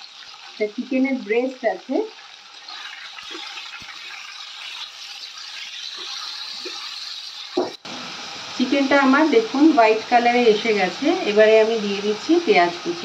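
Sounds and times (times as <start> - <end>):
chicken sizzling in hot oil: 0.0 - 13.0
spatula scraping wok: 2.6 - 7.7.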